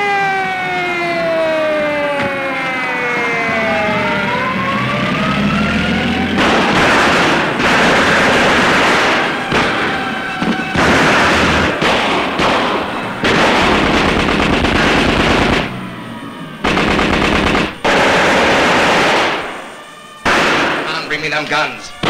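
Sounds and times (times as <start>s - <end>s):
submachine gun fire: 6.4s - 9.9s, 10.8s - 15.8s, 16.6s - 19.6s, 20.2s - 21.0s.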